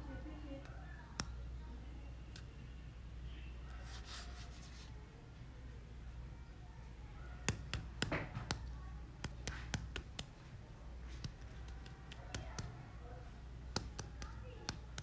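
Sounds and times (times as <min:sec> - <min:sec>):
low steady hum: 0:00.0 - 0:15.0
sharp clicks and taps: 0:07.5 - 0:10.4, 0:11.1 - 0:12.8, 0:13.7 - 0:15.0.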